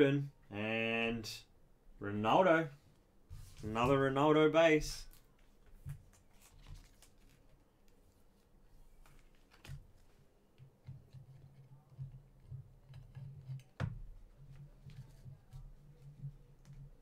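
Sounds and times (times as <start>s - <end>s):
trading cards flipped by hand: 5.1s - 8.0s, 9.0s - 10.2s.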